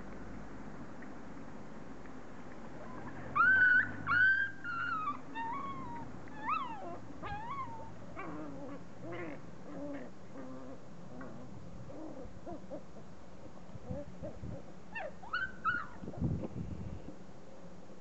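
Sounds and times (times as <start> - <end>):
puppies yelping and squealing: 2.8 - 13.1, 13.9 - 16.0
puppies growling: 2.8 - 16.0.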